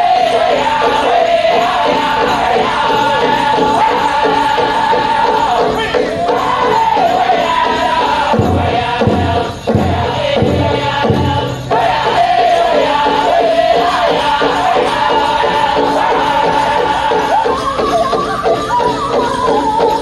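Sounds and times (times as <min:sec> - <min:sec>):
fast steady drumbeat: 0:00.0 - 0:20.0
group singing in high voices: 0:00.0 - 0:20.0
deep drum strokes: 0:02.4 - 0:17.0.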